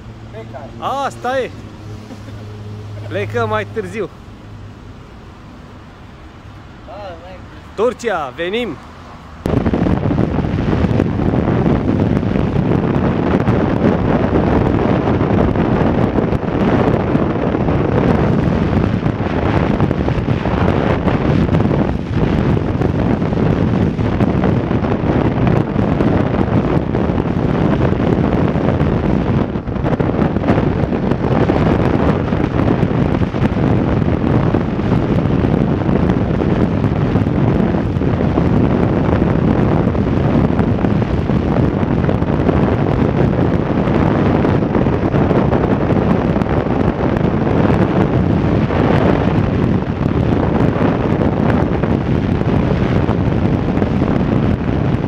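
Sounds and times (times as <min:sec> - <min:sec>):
motorcycle engine: 0:00.0 - 0:07.8
wind buffeting microphone: 0:00.0 - 0:55.0.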